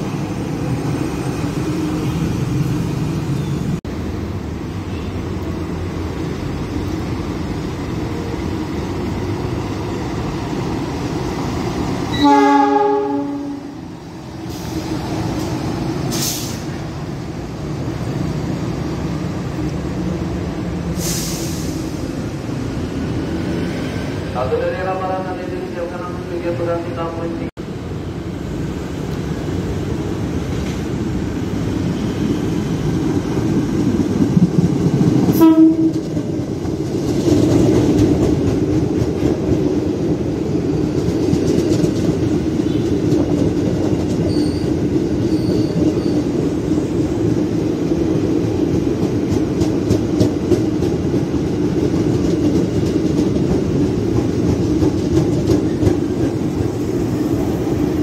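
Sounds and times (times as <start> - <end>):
train wheels rumbling on rails: 0.0 - 58.0
train horn blast: 12.1 - 13.8, 35.4 - 36.0.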